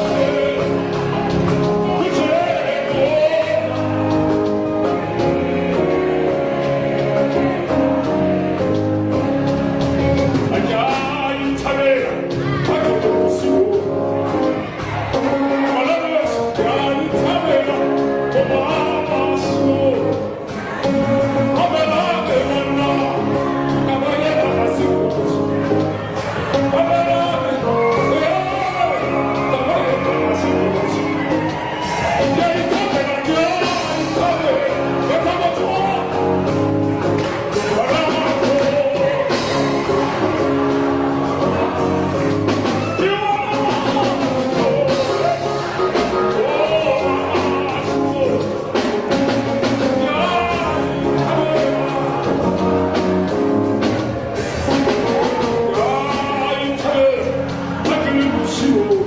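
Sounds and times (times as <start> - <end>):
man singing into a microphone: 0.0 - 1.0, 1.8 - 4.1, 10.5 - 14.0, 15.6 - 20.4, 21.5 - 25.4, 26.6 - 31.2, 32.2 - 36.4, 37.6 - 39.6, 42.9 - 45.5, 46.2 - 48.7, 49.8 - 52.8, 55.6 - 59.0
band with keyboard and bass: 0.0 - 59.0.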